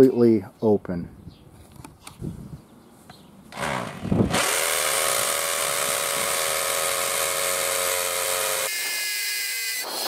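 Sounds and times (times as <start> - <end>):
power tool motor running: 3.5 - 10.0.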